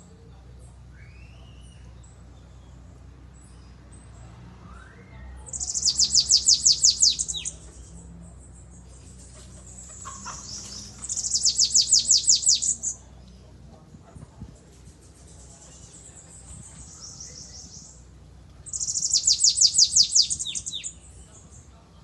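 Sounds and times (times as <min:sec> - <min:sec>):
soft bird calls: 0:00.2 - 0:13.6, 0:14.6 - 0:21.9
bird singing trilled phrases: 0:04.9 - 0:13.1, 0:15.2 - 0:21.8.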